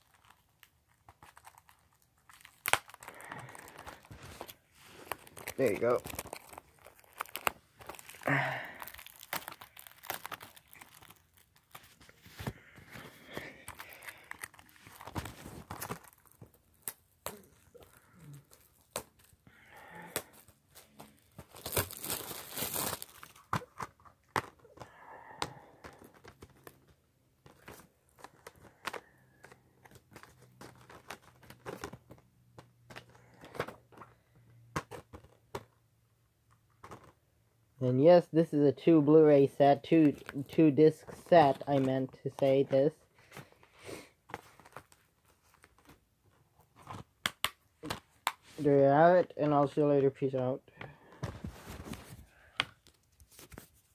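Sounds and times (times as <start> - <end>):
packaging crinkling and tearing: 0.0 - 34.2, 40.0 - 48.6.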